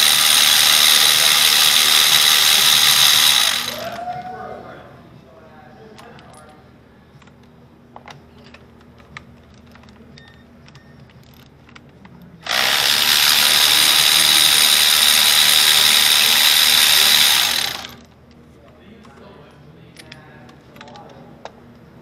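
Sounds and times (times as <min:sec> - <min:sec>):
electric ratchet motor whine: 0:00.0 - 0:04.0, 0:12.4 - 0:18.0.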